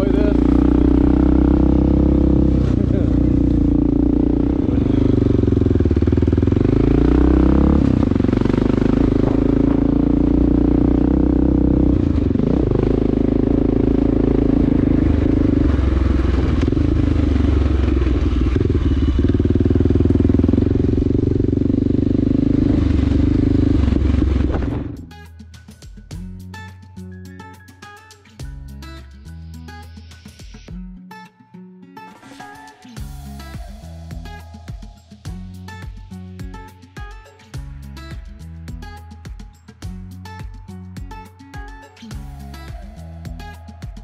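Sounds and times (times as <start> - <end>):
motorcycle engine under load: 0.0 - 25.0.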